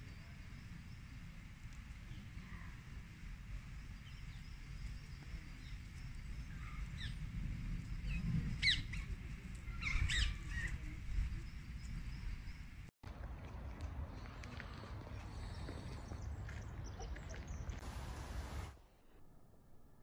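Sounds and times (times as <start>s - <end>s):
small birds chirping: 0.0s - 12.9s
steady low rumble: 0.0s - 18.6s.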